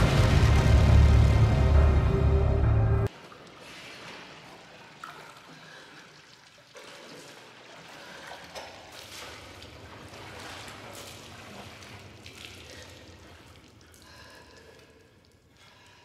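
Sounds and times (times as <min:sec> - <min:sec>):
small water splashes: 0:03.1 - 0:16.0
water trickling and dripping: 0:03.1 - 0:16.0.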